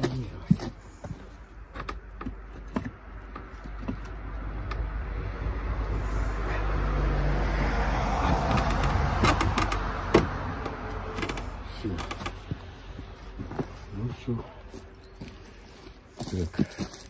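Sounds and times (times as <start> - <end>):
passing vehicle: 2.4 - 15.8.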